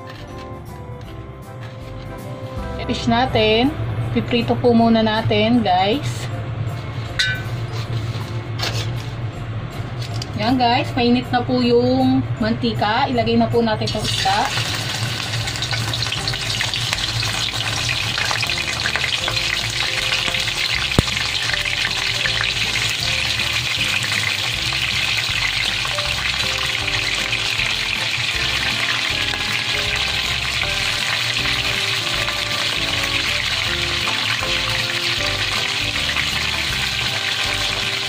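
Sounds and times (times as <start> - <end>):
fish sizzling in hot oil: 13.9 - 38.0.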